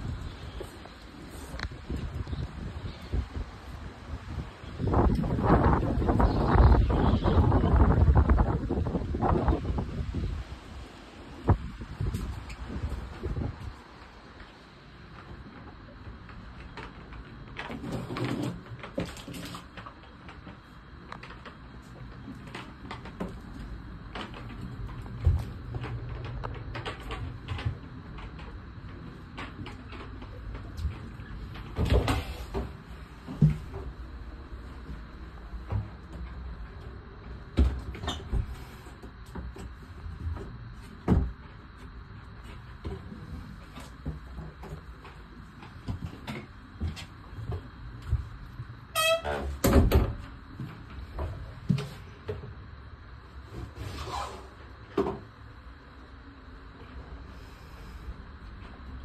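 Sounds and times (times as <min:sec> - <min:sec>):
steady low rumble: 0:00.0 - 0:16.6
sharp knocks and thumps: 0:37.5 - 0:41.6.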